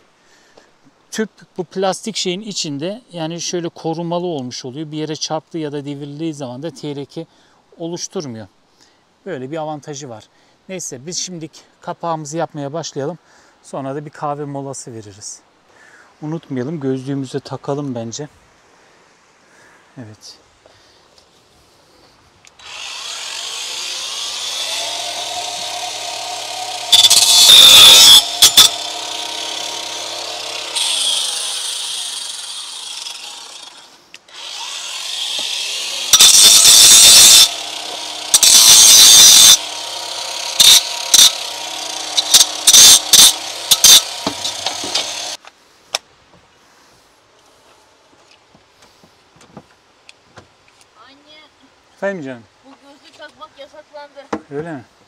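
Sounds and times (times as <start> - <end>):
electric saw motor whining: 22.6 - 45.4
saw blade cutting wood: 22.6 - 45.4.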